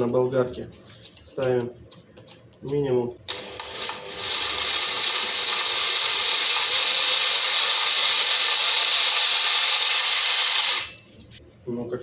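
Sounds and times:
angle grinder chainsaw running: 3.3s - 11.0s.

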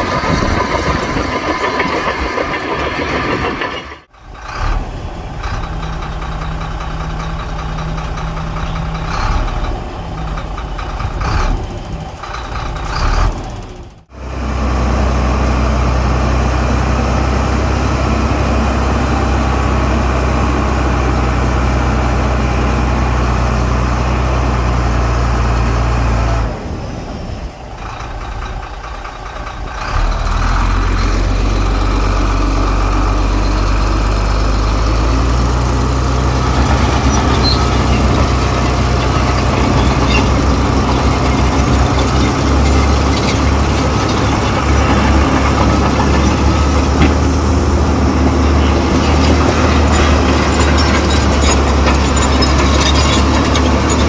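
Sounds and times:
heavy diesel engines under load: 0.0s - 54.0s.

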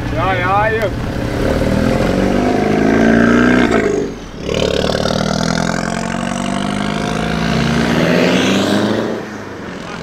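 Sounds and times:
car accelerating away: 0.8s - 10.0s.

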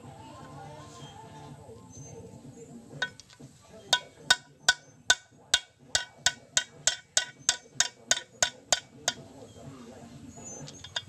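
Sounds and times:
hammer striking metal: 3.0s - 3.2s, 3.9s - 9.2s.

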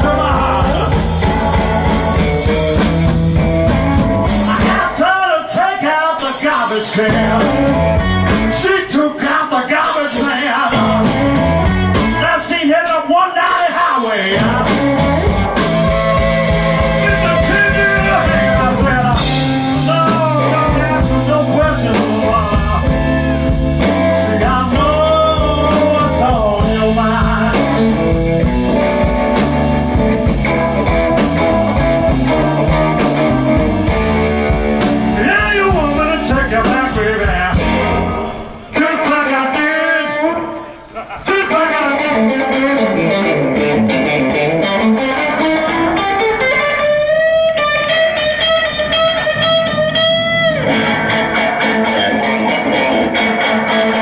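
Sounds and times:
electric guitar lead lines: 0.0s - 5.1s, 6.4s - 9.0s, 10.1s - 12.5s, 14.1s - 54.0s
electric blues band playing: 0.0s - 54.0s.

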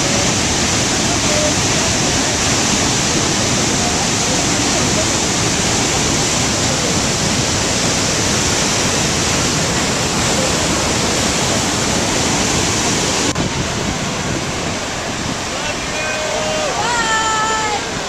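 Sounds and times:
waterfall rushing: 0.0s - 18.0s.

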